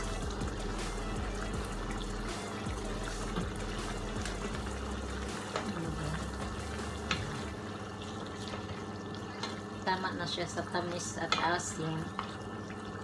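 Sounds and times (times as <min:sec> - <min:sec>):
sauce simmering and bubbling: 0:00.0 - 0:13.0
wooden spatula stirring: 0:01.6 - 0:08.8.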